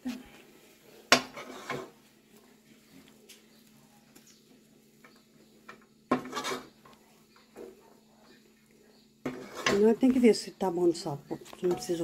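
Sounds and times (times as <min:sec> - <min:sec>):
spoon scraping dough in pot: 0:01.2 - 0:02.0, 0:05.6 - 0:07.8, 0:08.9 - 0:10.2.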